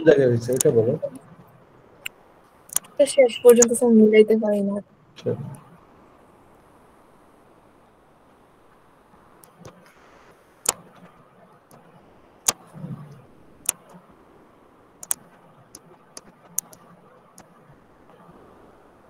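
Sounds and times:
faint hiss: 0:00.0 - 0:19.0
sharp single clicks: 0:15.0 - 0:15.2, 0:16.2 - 0:16.8.

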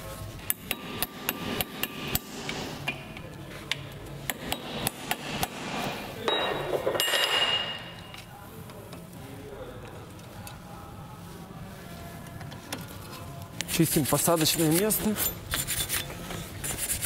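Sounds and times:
hammer striking brake disc: 0:00.5 - 0:03.0, 0:04.2 - 0:05.7.

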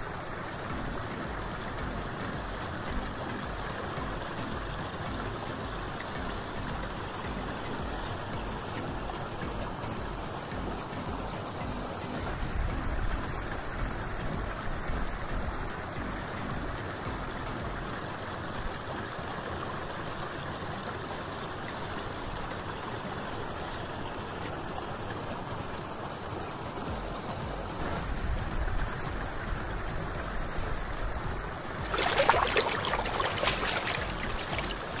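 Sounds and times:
shallow water rushing and trickling: 0:00.0 - 0:35.0
water splashing: 0:31.3 - 0:35.0.

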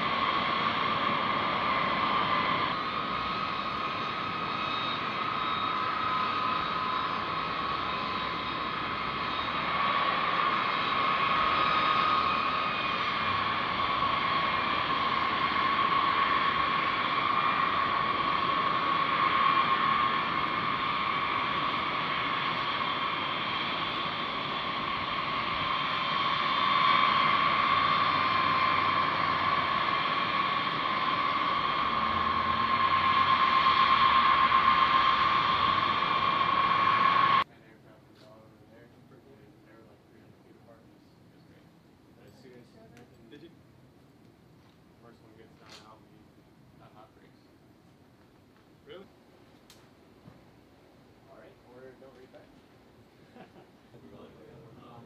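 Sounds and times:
jet engines whining: 0:00.0 - 0:41.6, 0:48.9 - 0:55.0
rushing hiss: 0:09.5 - 0:37.4.

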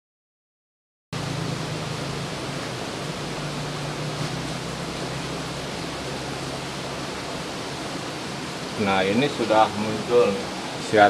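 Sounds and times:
low hum: 0:01.2 - 0:08.8
steady background hiss: 0:01.2 - 0:11.0.

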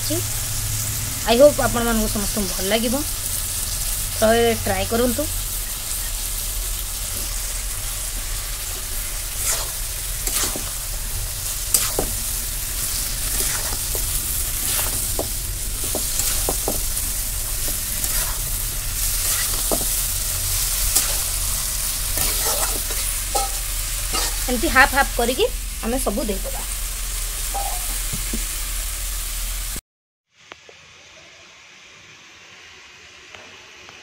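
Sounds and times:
chicken sizzling: 0:00.0 - 0:29.8
metal spatula scraping pan: 0:22.2 - 0:24.6.

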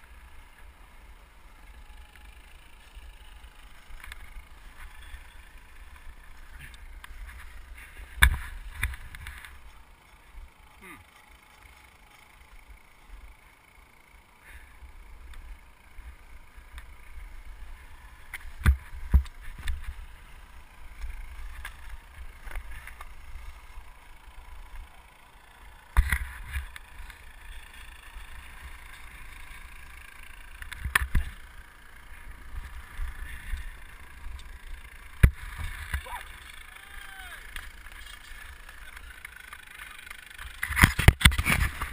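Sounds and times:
skis thumping on bumps: 0:06.4 - 0:09.8
skis scraping over snow: 0:40.6 - 0:41.9.

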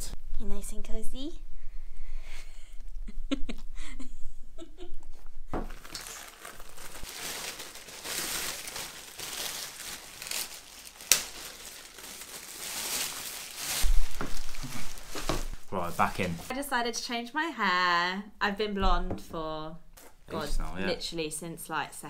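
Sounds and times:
plastic bin bag crinkling: 0:05.6 - 0:16.5
plastic snapping: 0:11.0 - 0:11.4.

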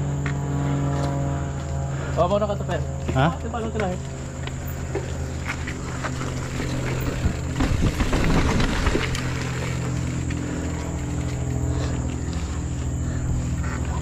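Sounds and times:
low buzz: 0:00.0 - 0:14.0
bike rattling over bumps: 0:02.9 - 0:14.0
bike tyres rolling over dirt: 0:03.1 - 0:14.0.

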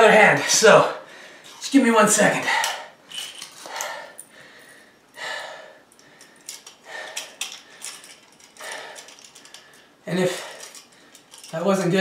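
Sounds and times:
man breathing hard: 0:01.0 - 0:01.6, 0:03.6 - 0:11.5
handcuffs clinking: 0:02.6 - 0:04.7, 0:05.9 - 0:11.7.

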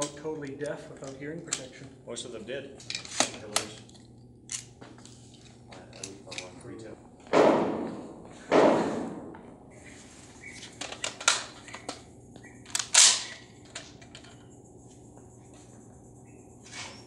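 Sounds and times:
echoing rifle shots: 0:07.3 - 0:09.3.

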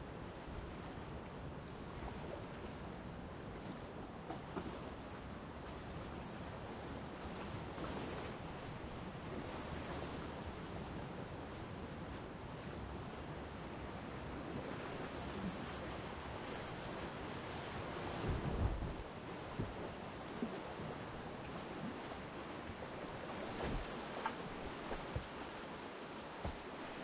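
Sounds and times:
wind buffeting microphone: 0:15.2 - 0:25.6
water splashes: 0:21.7 - 0:27.0
rushing whitewater: 0:22.2 - 0:27.0.

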